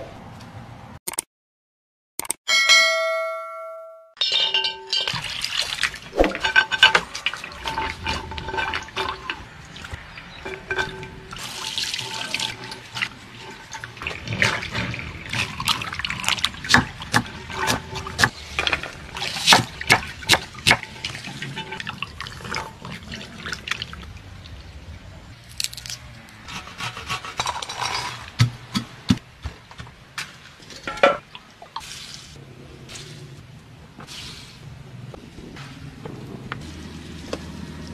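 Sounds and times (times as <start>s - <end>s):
bowls and pans clinking: 4.2s - 5.4s, 6.2s - 22.6s.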